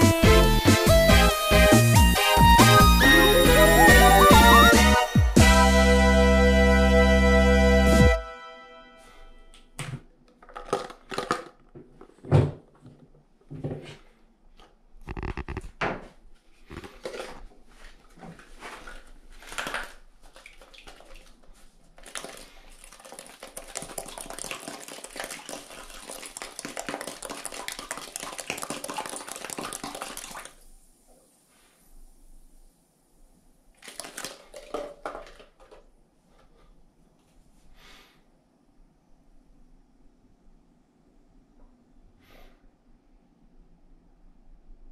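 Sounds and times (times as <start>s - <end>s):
plastic bottle and tubing clattering: 9.8s - 22.8s, 33.8s - 36.5s
gas fizzing and bubbling in water: 19.5s - 31.9s.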